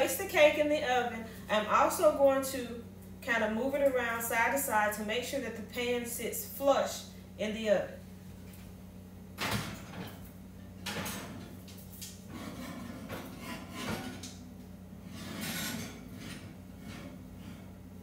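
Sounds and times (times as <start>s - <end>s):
oven rack clunking and scraping: 9.4s - 11.6s, 12.3s - 14.4s, 15.0s - 17.8s.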